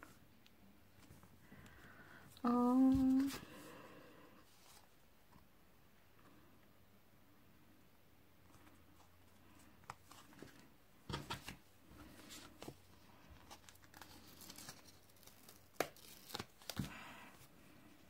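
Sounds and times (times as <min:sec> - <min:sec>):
paper rustling and crinkling: 0:09.8 - 0:17.4.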